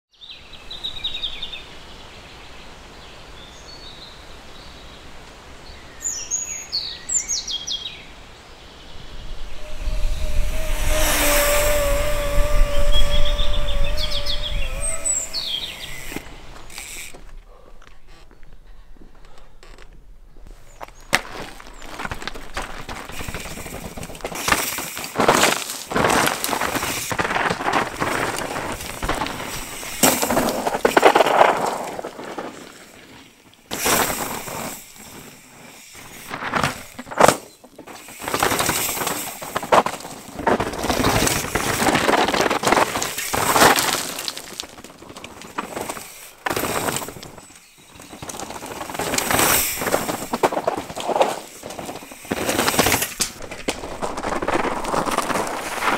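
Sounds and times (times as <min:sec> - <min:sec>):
bike tyres crunching over stones: 0:09.3 - 0:55.9
wheels clacking on rocks: 0:11.2 - 0:55.9.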